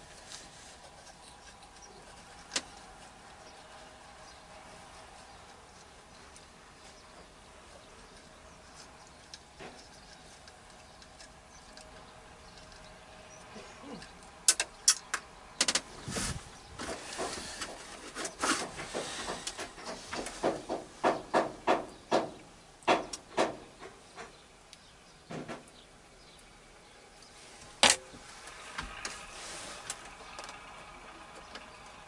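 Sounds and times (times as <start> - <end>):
hand tools clicking and knocking: 16.8 - 24.4.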